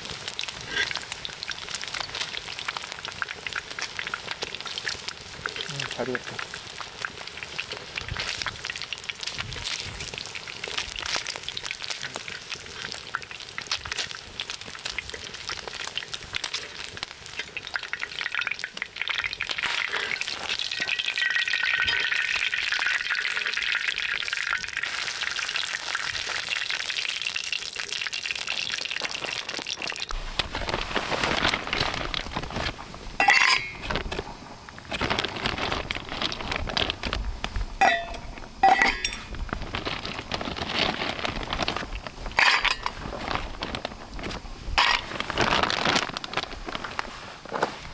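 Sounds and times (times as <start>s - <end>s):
meat sizzling on a griddle: 0.0s - 35.0s
dishes and cups clinking: 33.2s - 33.8s, 37.8s - 39.3s, 42.4s - 42.9s.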